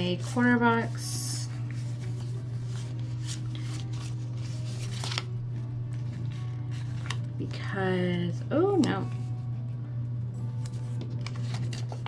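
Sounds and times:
steady low hum: 0:00.0 - 0:12.0
paper sheets rustling: 0:01.4 - 0:07.6, 0:10.6 - 0:12.0.

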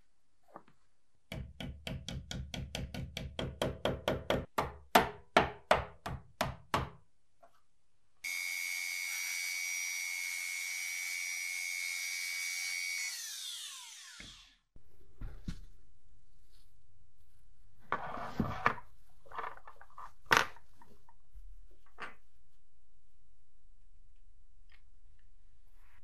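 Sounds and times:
rotary tool whining: 0:08.3 - 0:14.7.

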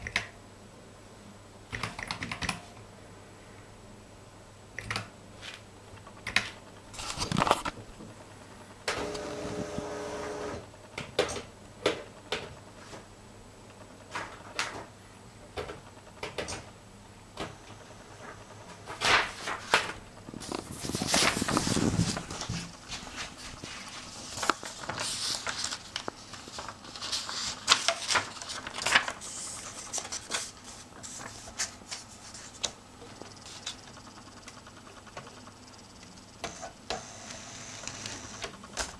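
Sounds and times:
paper rustling: 0:07.0 - 0:07.8, 0:18.2 - 0:33.8.

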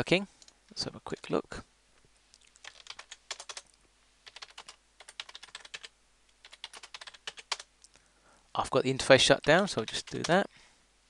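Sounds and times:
computer keyboard typing: 0:02.6 - 0:07.7, 0:09.4 - 0:10.4.

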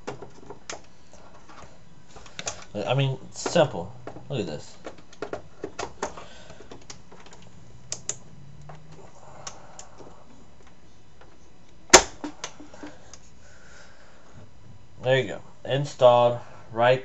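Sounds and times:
retaining clips snapping: 0:04.8 - 0:08.8.

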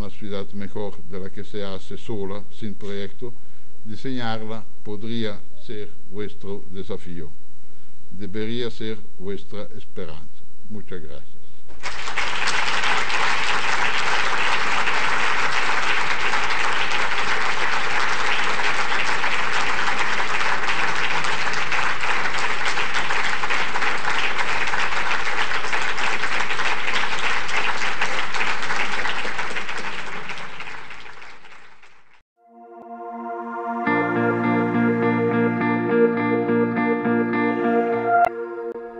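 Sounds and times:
audience applauding: 0:11.7 - 0:32.2
music with plucked notes: 0:32.5 - 0:38.9.

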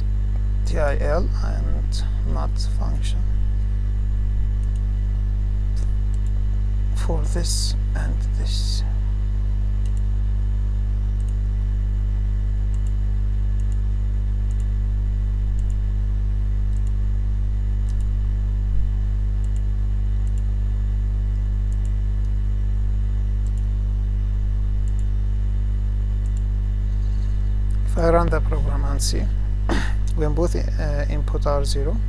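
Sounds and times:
low electrical hum: 0:00.0 - 0:32.0
computer mouse clicks: 0:04.6 - 0:04.9, 0:09.8 - 0:10.1, 0:11.2 - 0:11.6, 0:12.7 - 0:13.0, 0:13.6 - 0:13.8, 0:14.5 - 0:14.7, 0:15.5 - 0:15.8, 0:17.8 - 0:18.1, 0:19.4 - 0:20.5, 0:21.3 - 0:22.4, 0:23.4 - 0:23.7, 0:24.8 - 0:25.1, 0:26.2 - 0:26.5.

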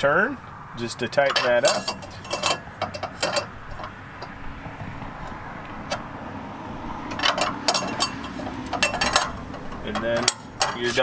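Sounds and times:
wrench clinking on metal: 0:01.2 - 0:04.4, 0:07.1 - 0:11.0.

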